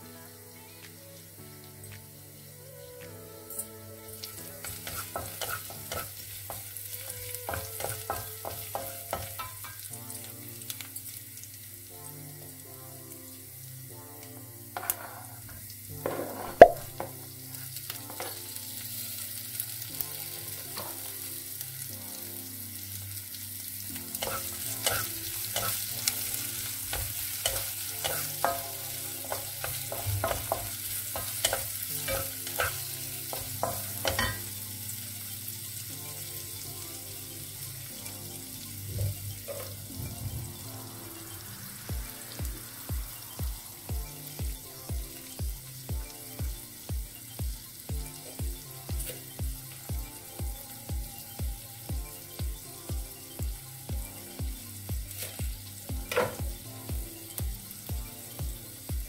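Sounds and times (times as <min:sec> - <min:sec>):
oil sizzling: 0:00.0 - 0:59.0
vegetables knocking into pan: 0:14.8 - 0:17.3, 0:26.9 - 0:34.5
wooden spatula scraping pan: 0:16.0 - 0:16.9.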